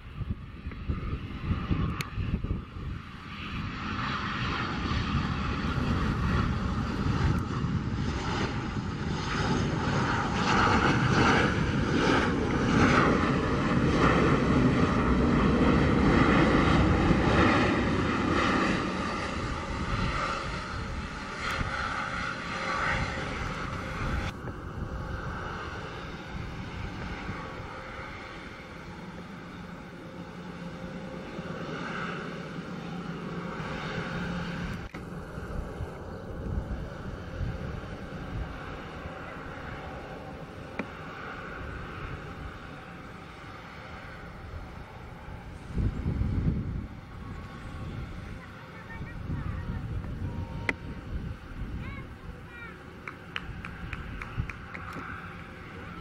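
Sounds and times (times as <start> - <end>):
jet engines roaring: 0.0 - 56.0.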